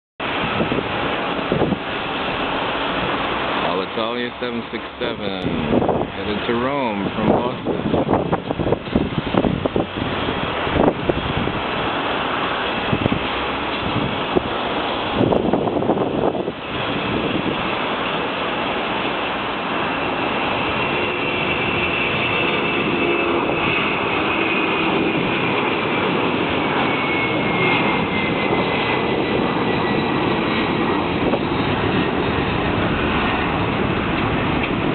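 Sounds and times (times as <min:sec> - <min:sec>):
jet engines at takeoff: 0:00.2 - 0:34.9.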